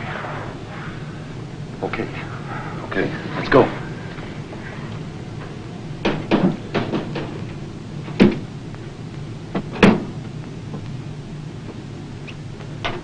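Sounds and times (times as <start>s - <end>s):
cabinet door knocking and clattering: 6.0s - 7.3s.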